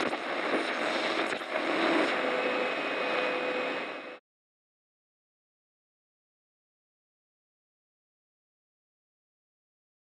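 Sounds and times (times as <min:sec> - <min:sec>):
rushing noise with held tone: 0:00.0 - 0:04.2.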